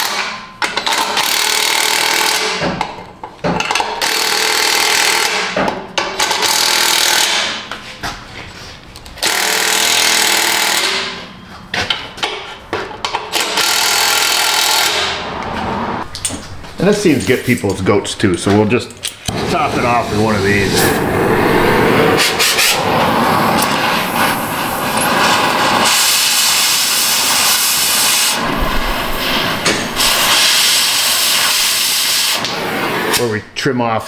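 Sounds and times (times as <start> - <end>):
impact wrench hammering: 0.0 - 7.6, 9.2 - 11.3, 11.9 - 15.2, 27.6 - 30.9.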